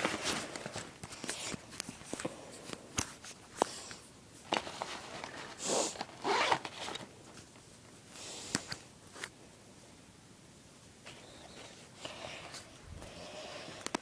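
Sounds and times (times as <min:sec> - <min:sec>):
bag rustling and clicks: 0:04.4 - 0:07.1
bag zipper being pulled: 0:06.2 - 0:06.7.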